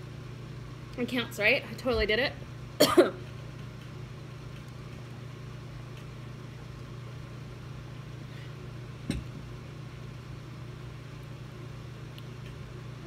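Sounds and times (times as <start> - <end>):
low room hum: 0.0 - 13.0
glass set down on table: 9.1 - 9.4.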